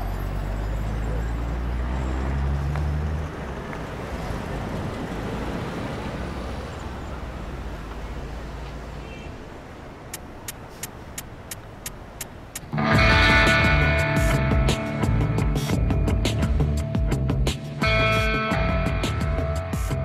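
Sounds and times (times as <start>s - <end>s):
low engine rumble: 0.0s - 20.0s
passing car traffic: 0.0s - 20.0s
light regular ticking: 10.0s - 14.9s.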